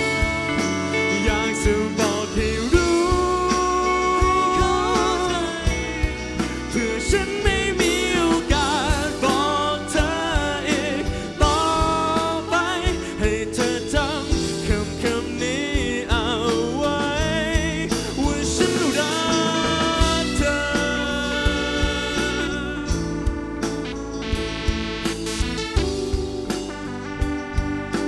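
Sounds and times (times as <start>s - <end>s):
man singing pop ballad: 0.0s - 23.6s
band accompaniment with steady beat: 0.0s - 28.0s.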